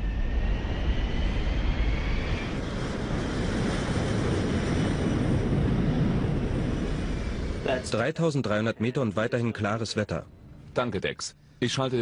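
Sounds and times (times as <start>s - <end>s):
jet engine rumble: 0.0s - 8.1s.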